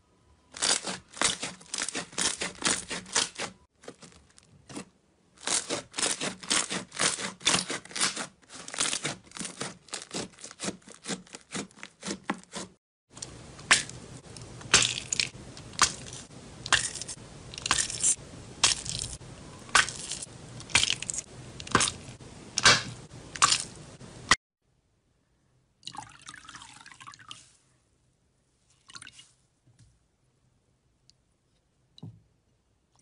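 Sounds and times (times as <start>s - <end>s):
wet sponge squishing: 0.5s - 12.8s, 14.6s - 24.4s
plastic bag crackling: 7.8s - 12.0s.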